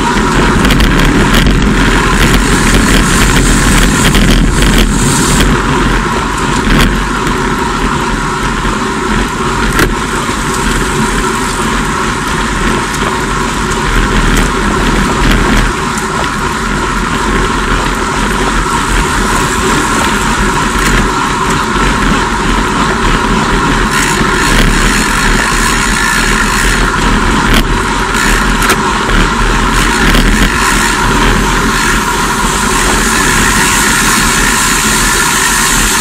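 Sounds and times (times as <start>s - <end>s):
bike tyre hum: 0.0s - 36.0s
wind buffeting microphone: 0.0s - 36.0s.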